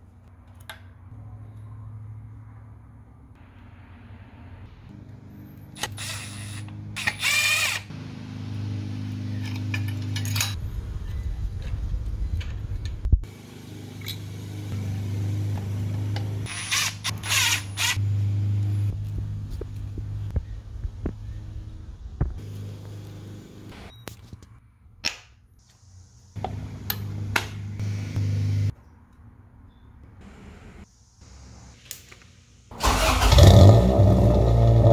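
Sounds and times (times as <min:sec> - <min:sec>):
cordless driver motor running: 0:05.8 - 0:07.9.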